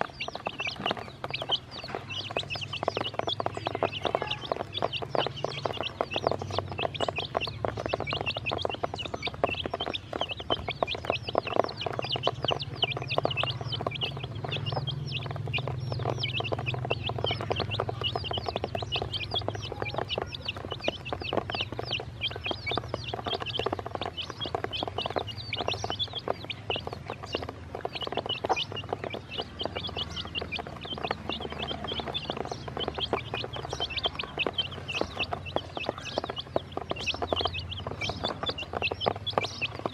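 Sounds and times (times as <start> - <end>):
baby chicks peeping: 0.0 - 39.9.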